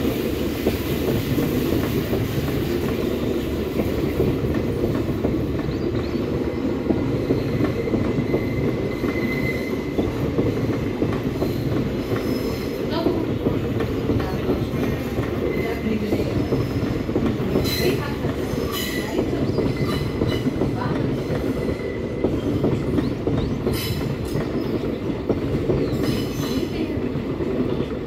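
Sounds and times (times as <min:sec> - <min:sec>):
train wheels rumbling on rails: 0:00.0 - 0:28.0
high-pitched wheel squeals: 0:07.9 - 0:10.0.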